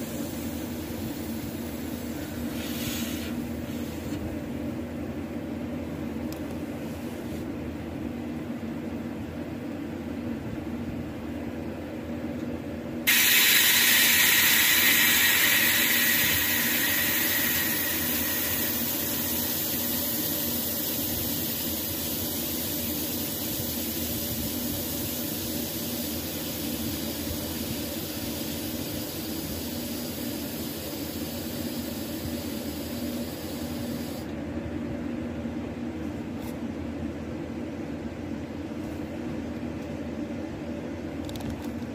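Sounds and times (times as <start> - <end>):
compressed air hissing into tube: 0.0 - 4.2, 13.1 - 34.3.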